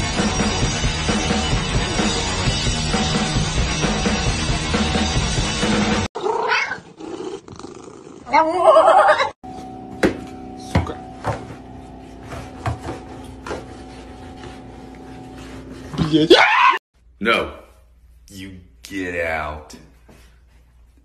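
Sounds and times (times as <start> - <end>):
cat yowling: 6.2 - 6.9, 16.1 - 16.8.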